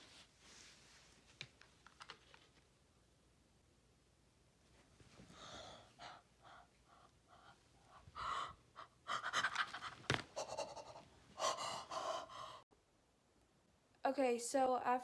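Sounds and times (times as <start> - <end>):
girl panting: 5.2 - 12.7.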